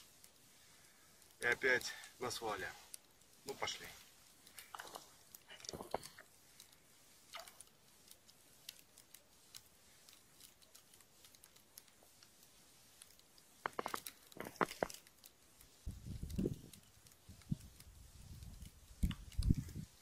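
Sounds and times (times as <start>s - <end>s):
light ice crunches: 13.0s - 15.3s.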